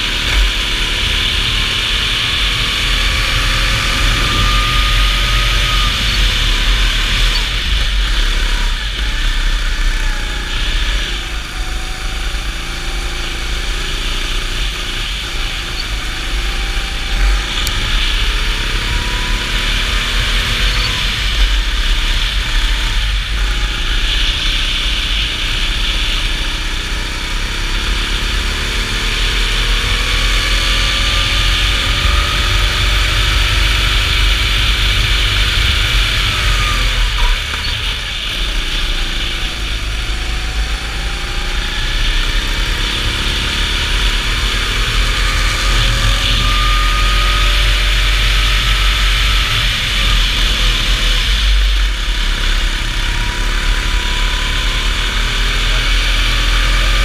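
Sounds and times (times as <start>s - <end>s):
wind rumble on microphone: 0.0s - 12.2s
go-kart engine revving: 0.0s - 57.0s.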